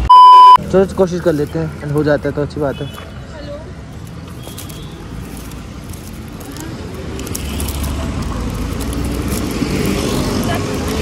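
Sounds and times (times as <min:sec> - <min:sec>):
road traffic rumble: 0:00.0 - 0:11.0
plastic strapping crackling: 0:03.9 - 0:11.0.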